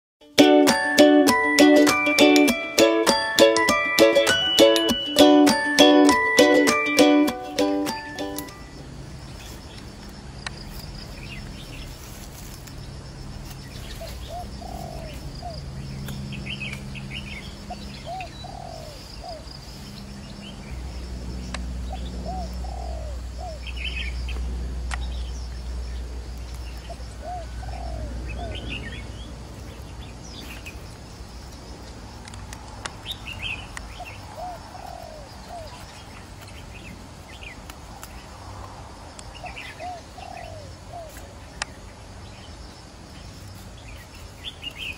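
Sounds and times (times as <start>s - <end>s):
small birds chirping: 0.6s - 44.9s
dove cooing: 14.0s - 15.6s, 18.1s - 19.5s, 21.9s - 23.6s, 27.2s - 28.7s, 34.3s - 35.9s, 39.8s - 41.1s.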